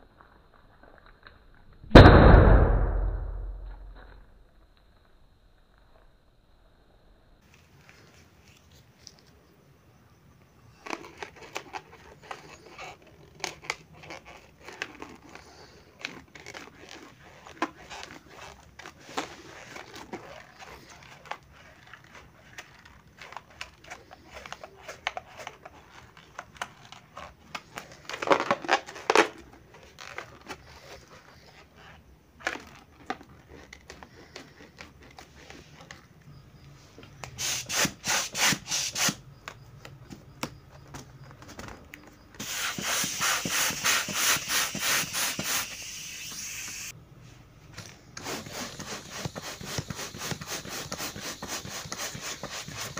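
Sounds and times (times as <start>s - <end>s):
rubber balloons squeaking and crinkling: 10.7s - 36.4s, 37.2s - 47.0s, 48.1s - 52.9s
balloon rubbing strokes: 37.3s - 39.2s, 42.4s - 46.9s, 48.2s - 52.9s.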